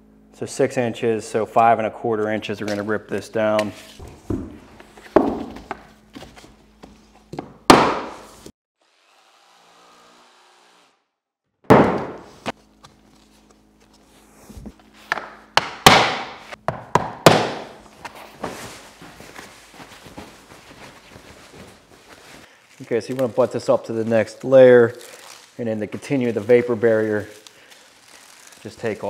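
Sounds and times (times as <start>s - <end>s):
wooden flooring planks knocking: 4.3s - 5.8s.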